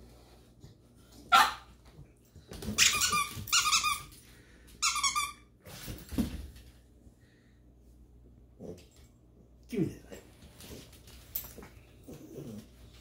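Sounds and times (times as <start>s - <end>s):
squeaky dog toy squeaking: 2.8s - 4.1s, 4.8s - 5.4s.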